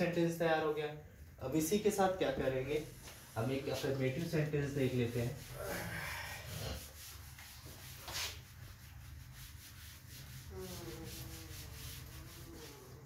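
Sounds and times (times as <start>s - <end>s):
duster rubbing on chalkboard: 3.1s - 5.6s, 6.5s - 13.0s.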